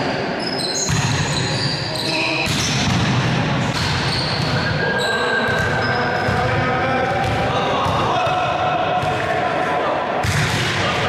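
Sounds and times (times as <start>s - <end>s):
balls struck and bouncing: 0.8s - 1.3s, 2.4s - 4.7s, 10.2s - 10.9s
players' voices: 1.5s - 11.0s.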